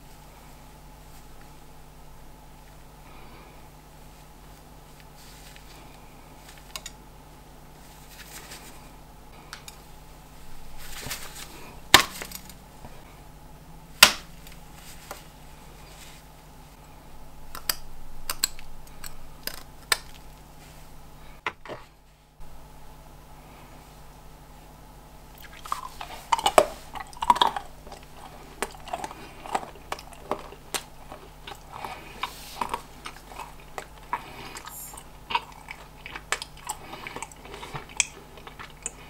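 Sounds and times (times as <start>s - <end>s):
rustle of handling: 0.0s - 1.8s, 4.0s - 13.2s, 14.4s - 16.9s, 19.1s - 22.3s, 28.0s - 34.9s
chocolate snapping: 14.0s - 14.6s, 17.4s - 20.5s, 25.4s - 39.0s.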